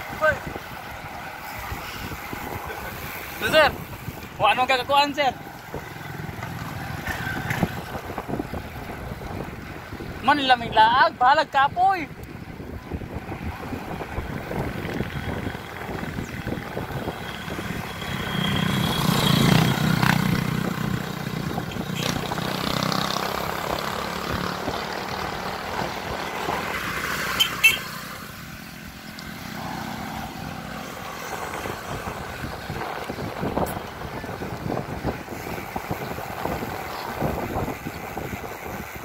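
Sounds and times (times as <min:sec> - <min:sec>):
wind and road noise: 0:00.0 - 0:39.0
motorcycle engine passing: 0:05.3 - 0:08.1, 0:16.5 - 0:32.4.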